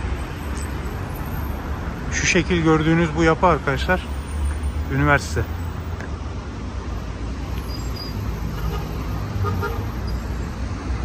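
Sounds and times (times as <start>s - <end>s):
passing cars rumbling: 0.0s - 11.0s
car horn toot: 8.5s - 9.9s.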